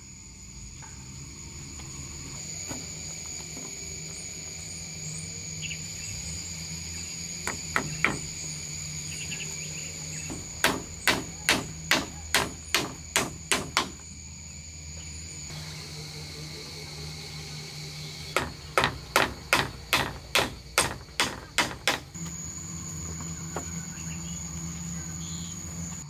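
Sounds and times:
insects chirring: 0.0 - 26.0
hammer blows: 10.3 - 14.1, 18.3 - 22.3.

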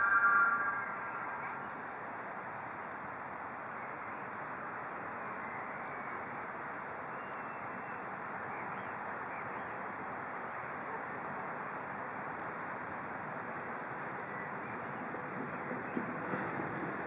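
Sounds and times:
faint bird chirps: 0.0 - 2.8.

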